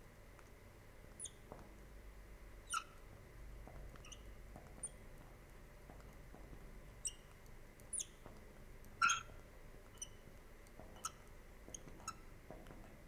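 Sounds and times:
marker squeaking on glass: 0:02.7 - 0:03.0, 0:04.0 - 0:04.3, 0:07.9 - 0:08.2, 0:09.0 - 0:09.3, 0:11.0 - 0:12.2.

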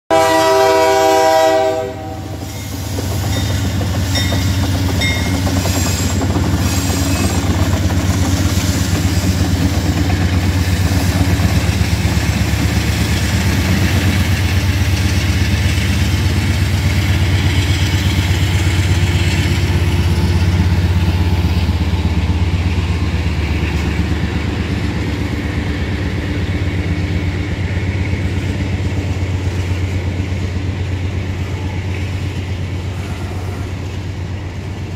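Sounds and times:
train horn: 0:00.1 - 0:02.6, 0:32.8 - 0:34.1
locomotive rumble: 0:00.1 - 0:34.9
wheels clacking on rails: 0:01.6 - 0:34.9.

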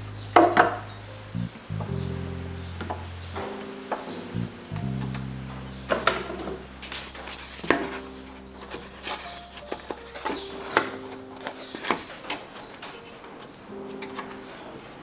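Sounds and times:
lo-fi jazz background music: 0:00.0 - 0:15.0.

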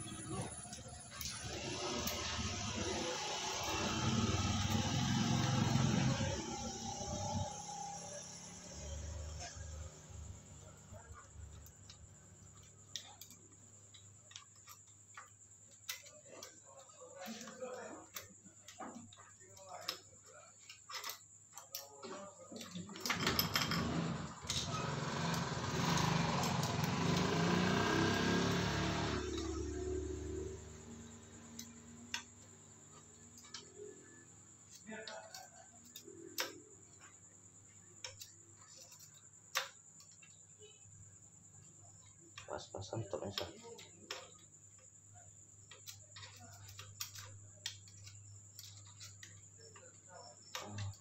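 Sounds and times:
small engine running: 0:00.0 - 0:11.1, 0:23.1 - 0:34.2
faint metal clicks and taps: 0:11.1 - 0:23.1.

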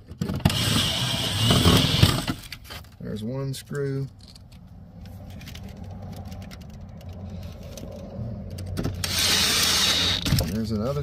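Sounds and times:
cordless drill driving screw into metal: 0:00.3 - 0:02.5, 0:09.0 - 0:10.5.

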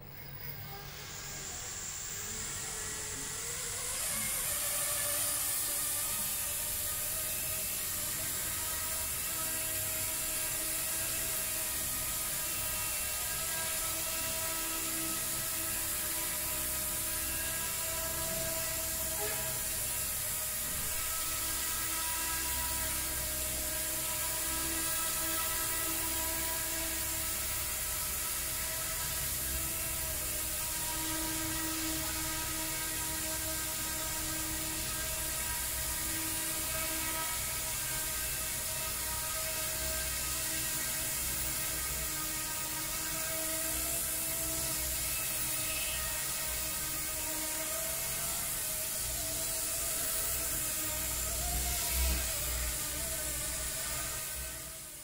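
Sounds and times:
model helicopter motor whine: 0:00.0 - 0:55.0
rotor whirring: 0:00.0 - 0:55.0.

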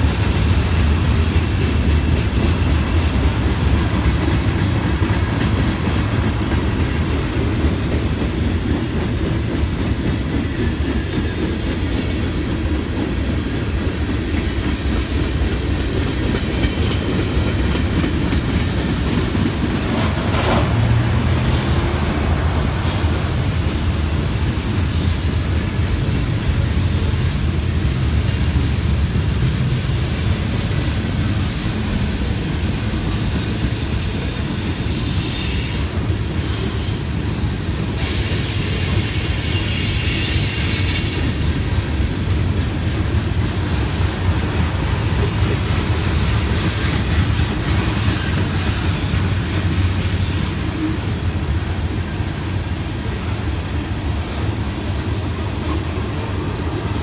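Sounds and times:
train wheels rumbling on rail: 0:00.0 - 0:57.0
wheel squeal: 0:38.0 - 0:41.8.

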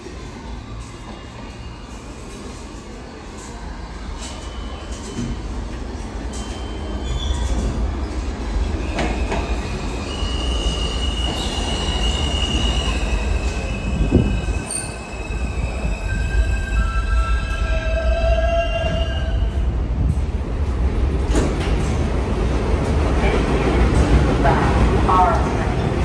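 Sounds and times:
subway train rumble: 0:00.0 - 0:26.0
high train brake squeal: 0:04.2 - 0:05.6, 0:06.3 - 0:07.7, 0:08.8 - 0:19.6.

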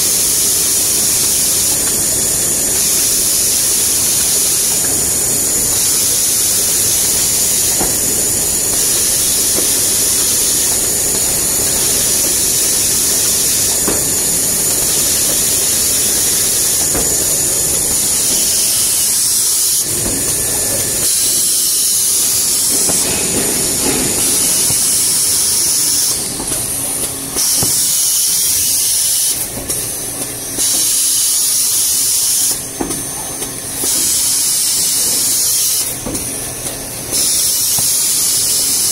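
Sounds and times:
machinery high hiss: 0:00.0 - 0:38.9
machinery mechanical rumble: 0:00.6 - 0:28.6.

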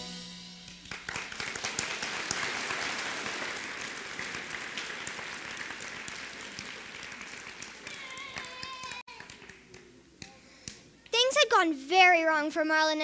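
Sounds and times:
audience applauding: 0:00.8 - 0:09.9.

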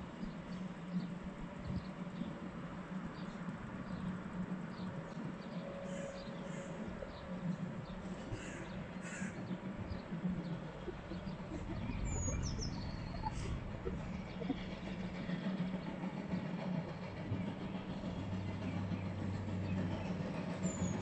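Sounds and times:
steam locomotive rumble: 0:00.0 - 0:21.0
crow cawing: 0:08.4 - 0:09.4.

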